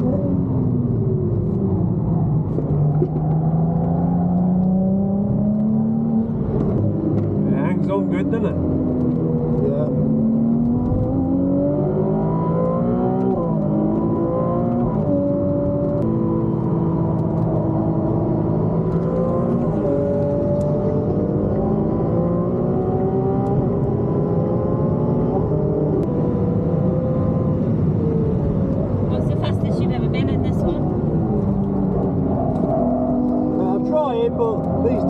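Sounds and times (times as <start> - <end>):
car engine revving with gear changes: 0.0 - 35.0
road and tyre rumble: 0.0 - 35.0.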